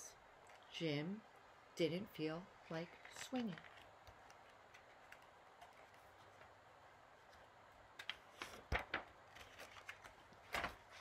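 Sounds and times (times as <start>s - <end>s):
book pages turning: 2.8s - 6.6s, 7.2s - 11.0s.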